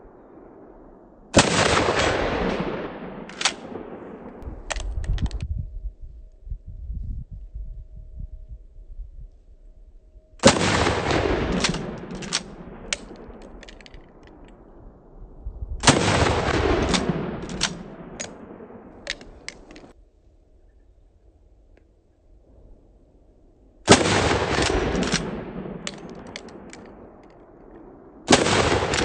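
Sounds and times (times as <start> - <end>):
shotgun blasts: 1.3 - 4.6, 10.4 - 13.9, 15.8 - 19.9, 23.9 - 27.2, 28.2 - 29.0
sharp cracks: 1.4 - 5.4, 10.4 - 14.6, 15.8 - 20.0, 23.9 - 29.0.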